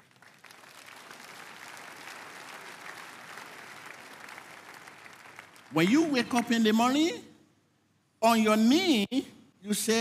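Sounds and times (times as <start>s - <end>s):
crowd applauding: 0.0s - 6.1s.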